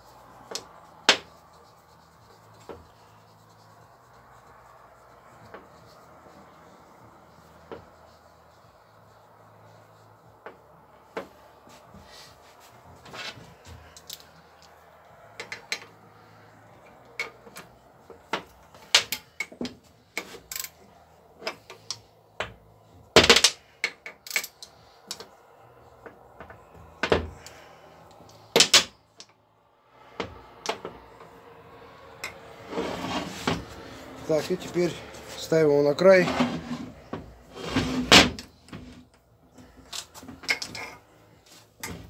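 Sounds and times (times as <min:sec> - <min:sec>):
metal tools clicking and knocking: 0:23.3 - 0:25.3, 0:39.8 - 0:41.0.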